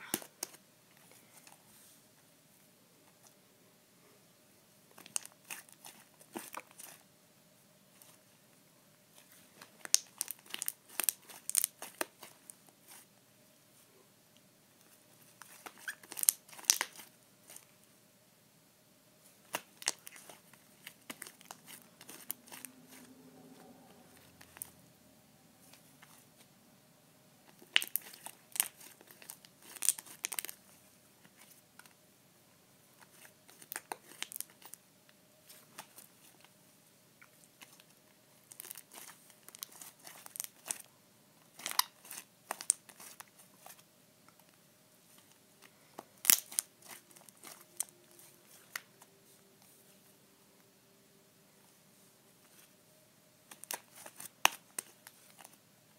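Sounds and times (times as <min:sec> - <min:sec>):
slime crackling and popping: 0:09.8 - 0:12.6, 0:15.4 - 0:17.6, 0:19.5 - 0:23.0, 0:27.5 - 0:30.6, 0:33.0 - 0:34.8, 0:38.5 - 0:40.8, 0:41.5 - 0:43.7, 0:46.2 - 0:47.9, 0:53.5 - 0:55.5.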